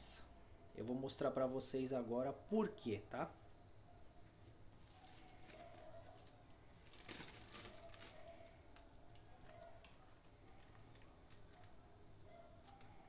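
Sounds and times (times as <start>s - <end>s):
plastic wrap crinkling: 4.4s - 13.0s.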